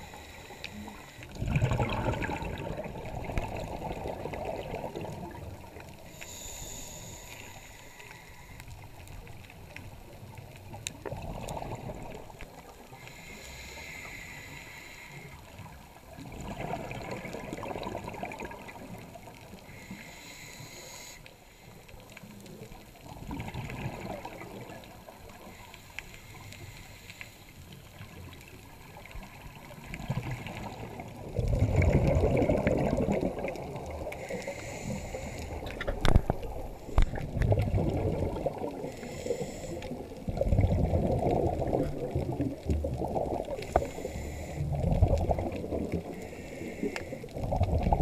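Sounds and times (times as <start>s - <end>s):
regulator inhalation hiss: 0.0s - 1.3s, 6.0s - 8.8s, 13.0s - 15.4s, 19.7s - 21.8s, 25.4s - 27.6s, 34.2s - 35.8s, 38.8s - 40.0s, 43.6s - 44.7s, 46.0s - 47.3s
exhaled bubbles rumbling underwater: 0.0s - 14.2s, 15.3s - 20.8s, 22.0s - 48.0s.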